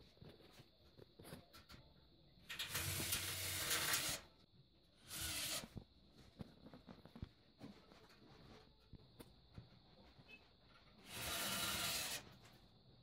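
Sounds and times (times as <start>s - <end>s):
cordless drill driving screws: 11.1s - 12.2s.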